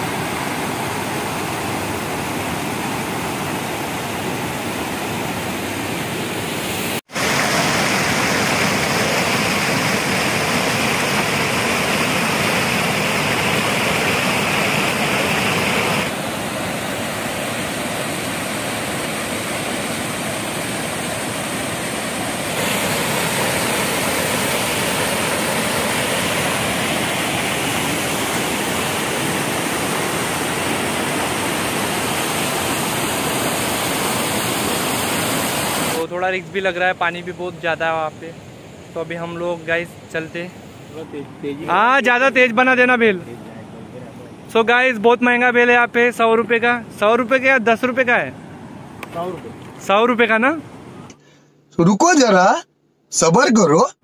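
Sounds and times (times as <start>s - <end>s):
waterfall rushing over rocks: 0.0s - 36.8s.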